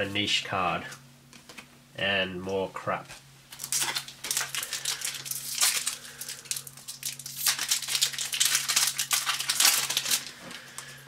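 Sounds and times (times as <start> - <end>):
trading cards rustling and flicking: 3.5 - 10.9.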